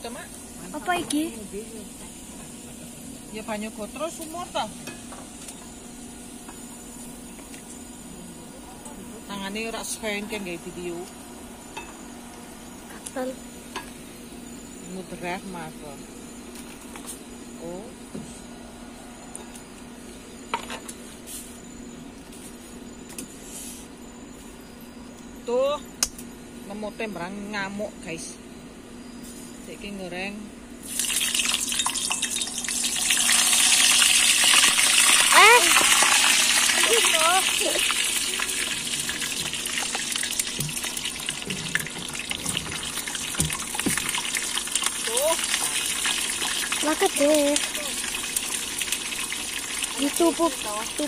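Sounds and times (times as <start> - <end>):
gas stove burner hum: 0.0 - 28.3, 29.9 - 51.0
oil sizzling in a pan: 30.8 - 51.0.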